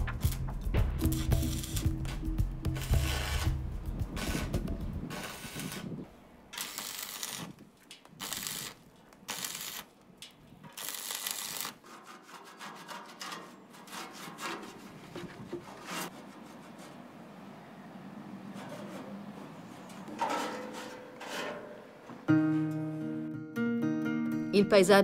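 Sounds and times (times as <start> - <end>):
arc welding crackling and hissing: 0.0 - 10.0, 10.7 - 11.8.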